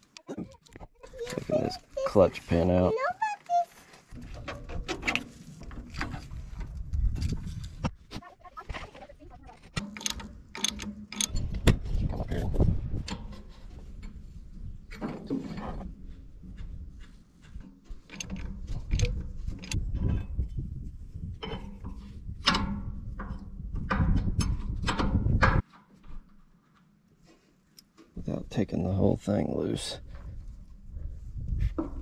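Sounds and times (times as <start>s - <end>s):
rumbling handling noise: 3.7s - 27.0s.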